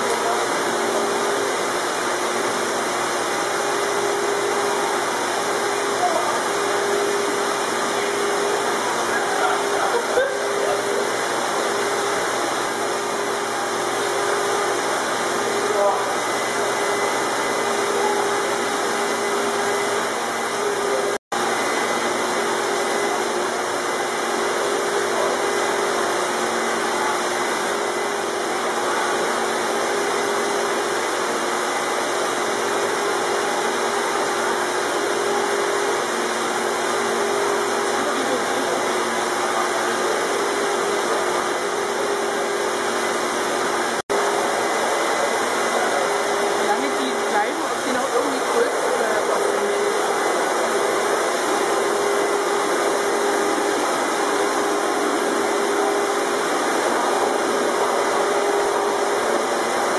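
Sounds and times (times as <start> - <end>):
water pumps whirring and rushing: 0.0 - 59.9.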